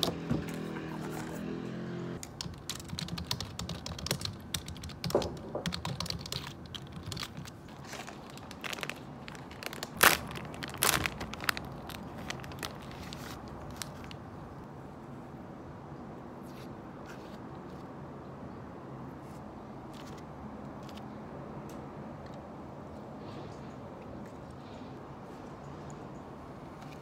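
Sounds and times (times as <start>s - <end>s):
plastic snack wrapper crinkling: 6.3s - 14.2s.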